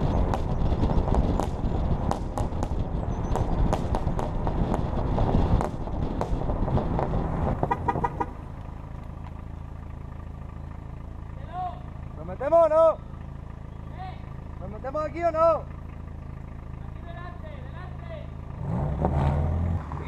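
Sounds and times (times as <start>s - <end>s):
wind noise: 0.0s - 8.4s
car engine: 0.0s - 20.0s.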